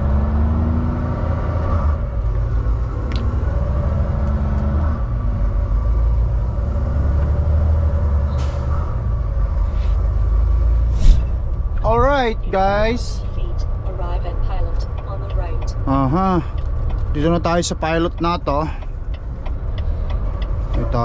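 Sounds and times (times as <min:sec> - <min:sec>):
truck diesel engine rumble: 0:00.0 - 0:21.0
brief hiss: 0:11.0 - 0:11.3.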